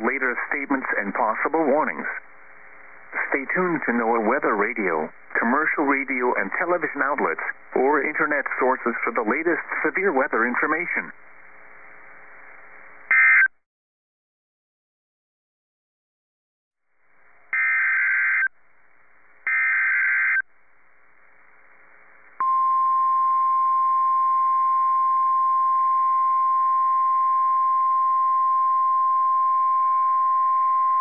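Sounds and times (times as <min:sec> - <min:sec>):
faint radio hiss: 0:00.0 - 0:13.1, 0:18.5 - 0:19.8, 0:20.5 - 0:23.3
steady alarm tone: 0:17.5 - 0:18.5, 0:19.5 - 0:20.4.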